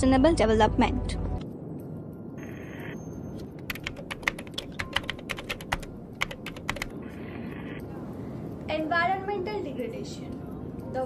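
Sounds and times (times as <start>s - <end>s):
computer keyboard typing: 3.6s - 7.0s.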